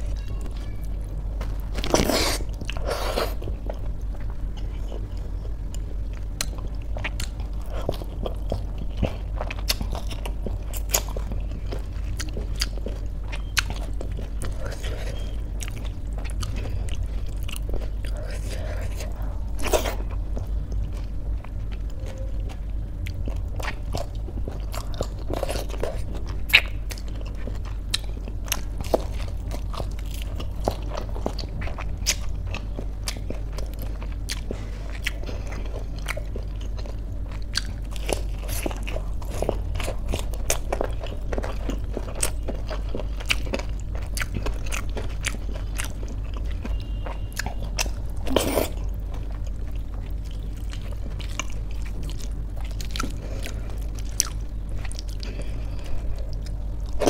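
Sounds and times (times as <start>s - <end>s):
crunchy chewing: 0.0s - 57.0s.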